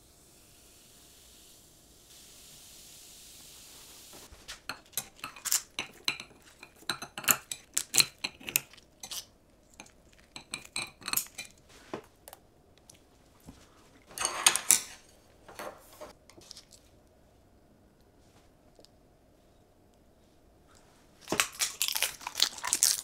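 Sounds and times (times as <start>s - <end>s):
scissors rasping through crisp food: 4.7s - 11.5s, 21.3s - 23.0s
utensils clinking on a plate: 4.7s - 11.6s, 14.1s - 16.2s.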